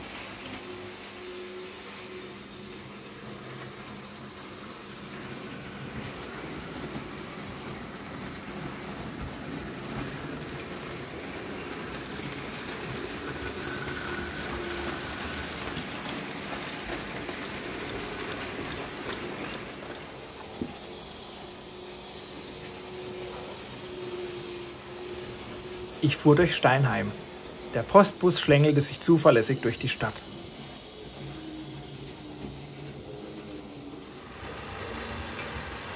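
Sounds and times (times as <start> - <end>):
model train rolling on track: 0.0 - 35.9.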